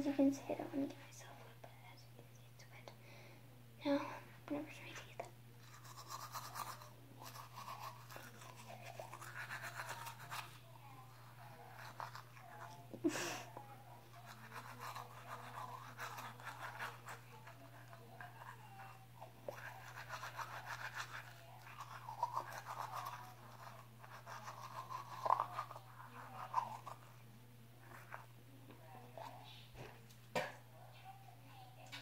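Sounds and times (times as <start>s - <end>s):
toothbrush scrubbing teeth: 5.6s - 12.9s, 14.1s - 27.2s.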